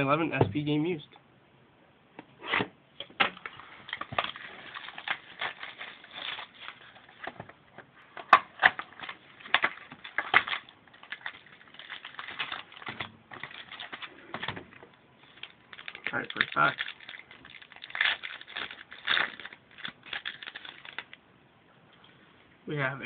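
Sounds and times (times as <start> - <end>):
plastic wrap crinkling and tearing: 3.4 - 7.4, 8.2 - 21.2.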